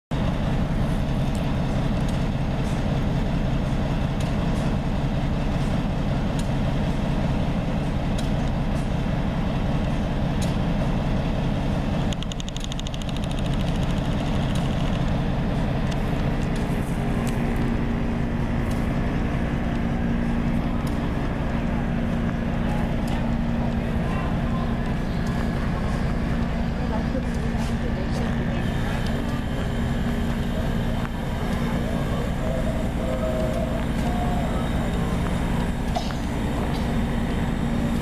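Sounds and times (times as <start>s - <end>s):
diesel locomotive engine idling: 0.1s - 38.0s
rapid ticking: 12.1s - 15.0s.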